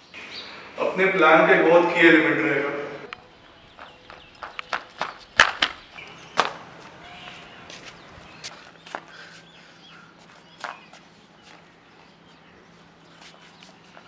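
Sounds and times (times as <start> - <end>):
flip-flop footsteps on concrete: 3.7 - 12.1, 13.1 - 14.0.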